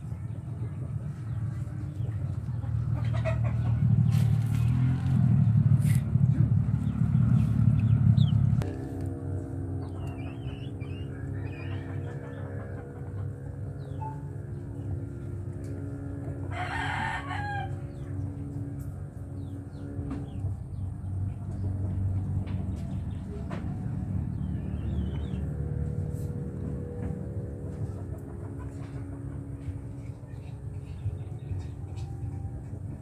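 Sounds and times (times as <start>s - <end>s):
small birds chirping: 0.0s - 8.6s, 9.8s - 15.4s, 17.8s - 26.4s
steady low hum: 0.0s - 33.0s
rooster crowing: 11.0s - 12.8s, 16.4s - 18.0s.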